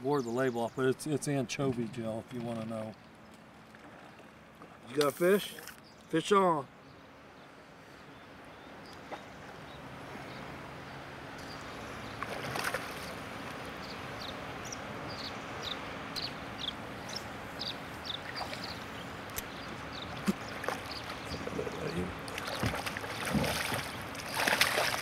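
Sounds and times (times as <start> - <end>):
water lapping against boat hull: 1.5 - 5.8, 17.1 - 25.0.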